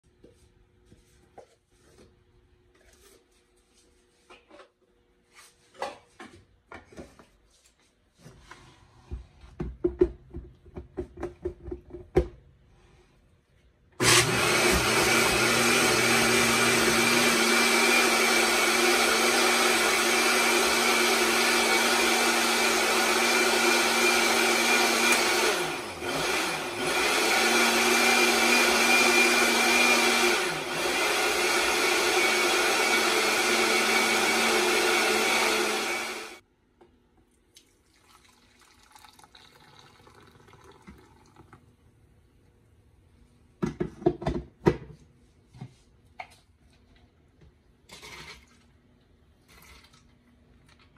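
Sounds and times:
electric blender running: 14.0 - 36.4.

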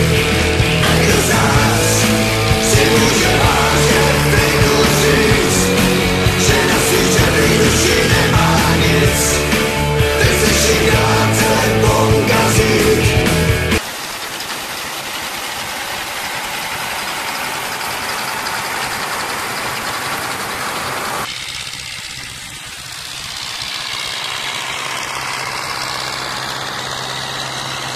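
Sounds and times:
rock music: 0.0 - 13.8
combine harvester running: 0.0 - 27.9
tractor diesel engine running: 0.0 - 27.9.

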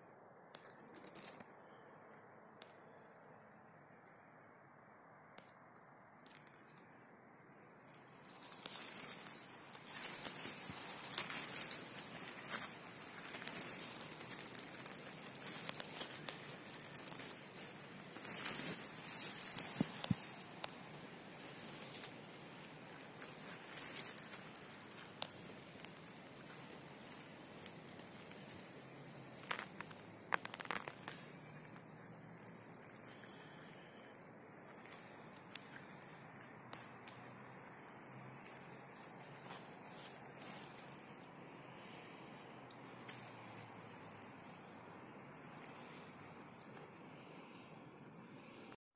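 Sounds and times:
hands rustling dry needles: 0.5 - 1.5, 5.4 - 47.2
twigs snapping: 0.5 - 1.5, 5.4 - 46.9.

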